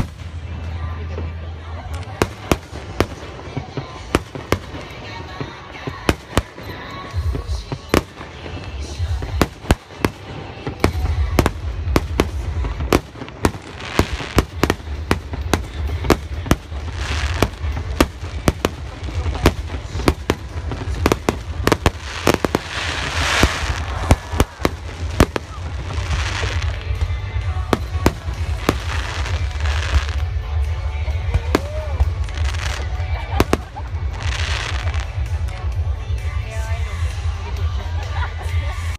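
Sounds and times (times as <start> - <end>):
fireworks bangs: 0.0 - 30.6
steady low rumble: 0.0 - 38.7
fireworks crackling: 0.0 - 38.9.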